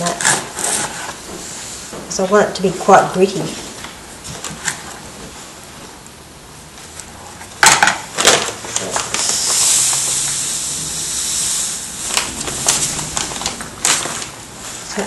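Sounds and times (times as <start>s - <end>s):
dust pouring from plastic bag: 9.0s - 14.4s.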